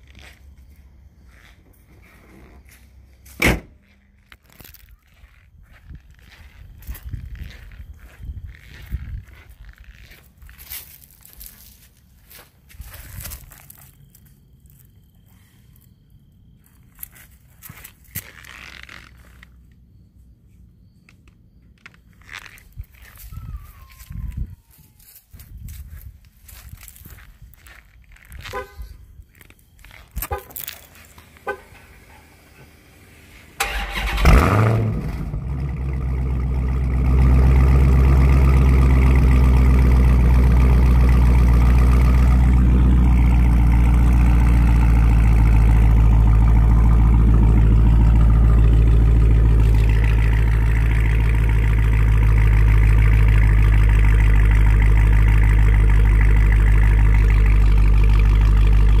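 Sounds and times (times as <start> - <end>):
car engine starting and idling: 29.9 - 59.0.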